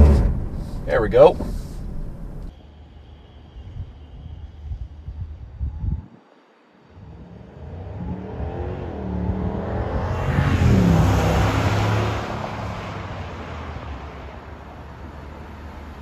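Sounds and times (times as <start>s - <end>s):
car engine passing: 0.0s - 2.5s, 6.9s - 16.0s.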